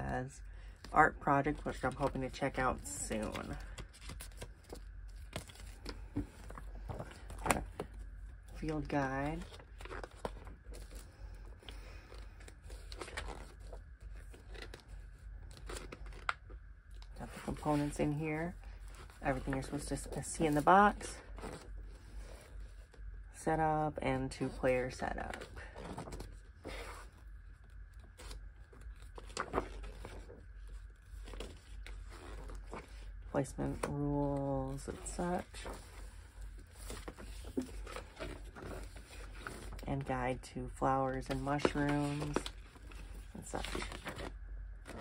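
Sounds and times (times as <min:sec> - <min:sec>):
faint low hum: 0:00.0 - 0:45.0
paper pages rustling: 0:01.5 - 0:23.0, 0:24.9 - 0:39.9, 0:41.1 - 0:45.0.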